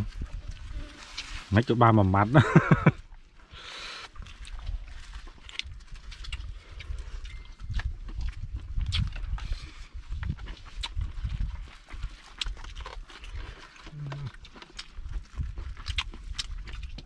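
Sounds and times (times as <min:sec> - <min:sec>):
chewing and lip smacking: 0:04.1 - 0:17.0.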